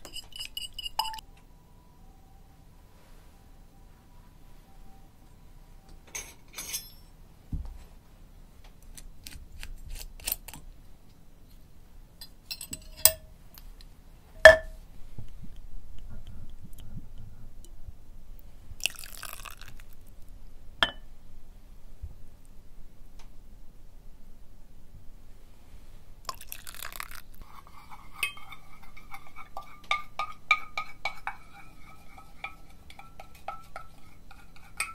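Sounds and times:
glass and ceramic clinks: 0:00.0 - 0:01.2, 0:06.1 - 0:07.1, 0:12.5 - 0:13.2, 0:14.4 - 0:14.7, 0:20.8 - 0:21.0, 0:28.2 - 0:28.5
liquid pouring: 0:18.8 - 0:20.0, 0:26.3 - 0:27.3
bottle cap unscrewed: 0:26.3 - 0:27.2.

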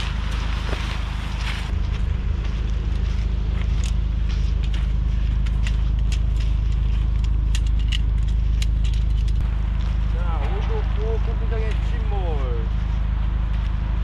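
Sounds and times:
tent poles clicking: 0:00.0 - 0:01.7, 0:02.7 - 0:12.1.

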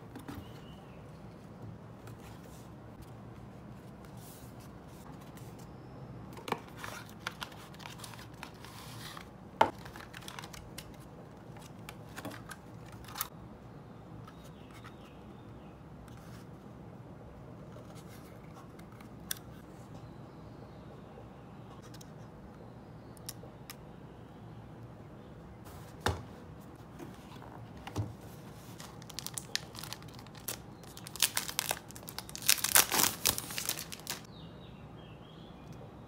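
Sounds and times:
plastic packaging clicks and crinkles: 0:09.7 - 0:13.3, 0:28.8 - 0:34.3.

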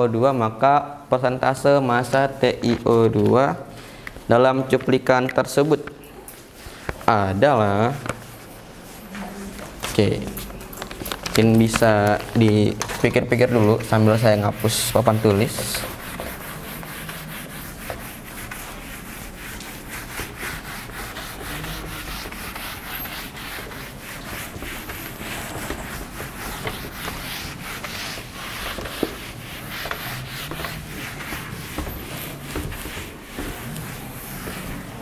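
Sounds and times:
eraser rubbing on whiteboard: 0:11.3 - 0:35.0.

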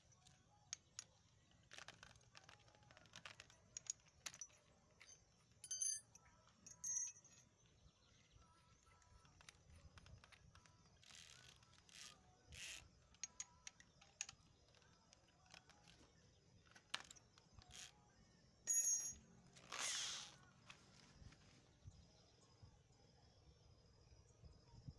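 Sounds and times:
small metal clicks and rustling: 0:00.0 - 0:18.0.

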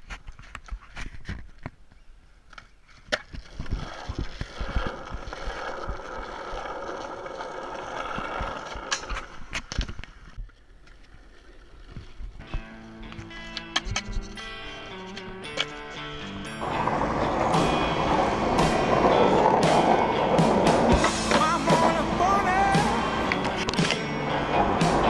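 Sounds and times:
skateboard wheels rolling on asphalt: 0:00.0 - 0:25.0
skateboard clacks: 0:03.1 - 0:11.6, 0:16.6 - 0:25.0.

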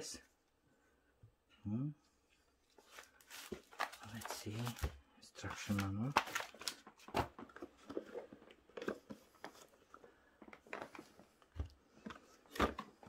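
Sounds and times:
rustling of papers: 0:02.6 - 0:13.0.

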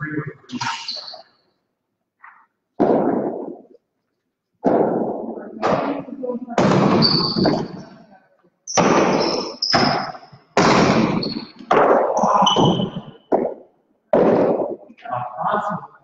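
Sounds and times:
ball cracking off walls: 0:04.6 - 0:07.8, 0:08.7 - 0:14.9.

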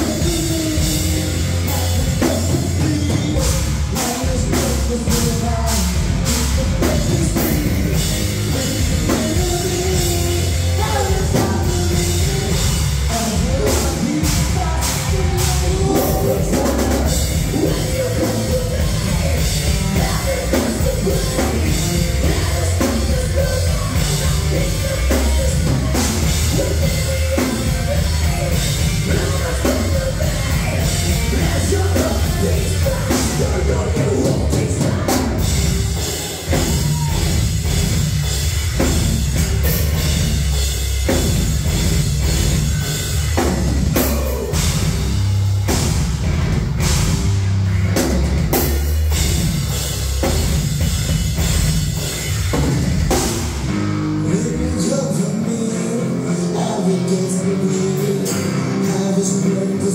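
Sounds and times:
person singing into a microphone: 0:00.0 - 0:37.4, 0:54.2 - 0:59.9
bass guitar: 0:00.0 - 0:59.9
electric guitar: 0:00.0 - 0:59.9
pounding drum kit: 0:00.0 - 0:59.9.

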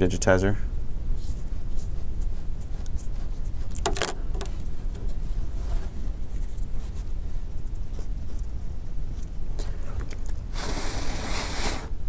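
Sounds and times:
low background rumble: 0:00.0 - 0:12.0
cloth rubbing on glass screen: 0:01.1 - 0:03.9, 0:04.6 - 0:09.2.

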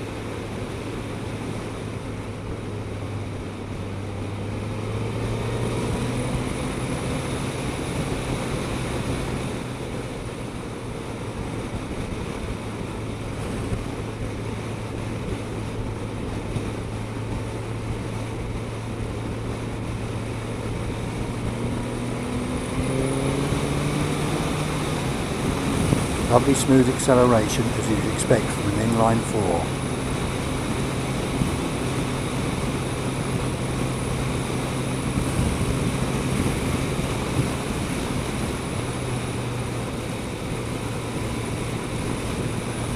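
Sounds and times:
wind rush: 0:12.8 - 0:41.3.

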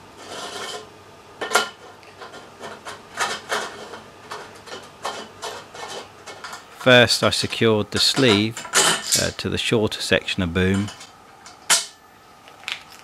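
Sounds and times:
metal tube scraping and clinking: 0:02.2 - 0:06.7.

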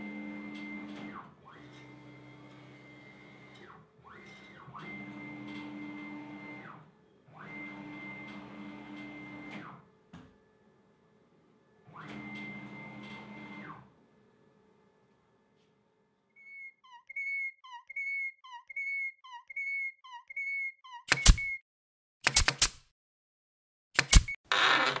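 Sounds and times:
whistle-like chirps: 0:16.4 - 0:21.6.

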